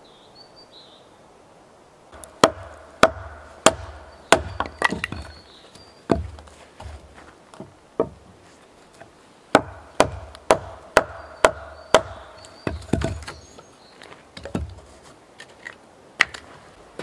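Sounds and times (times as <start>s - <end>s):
hand tool striking wood: 2.2s - 5.4s, 6.1s - 8.3s, 9.5s - 13.6s, 14.4s - 14.8s.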